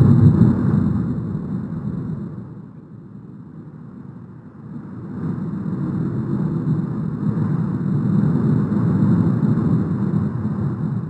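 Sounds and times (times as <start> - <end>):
volcano vent roaring: 0.0 - 2.5.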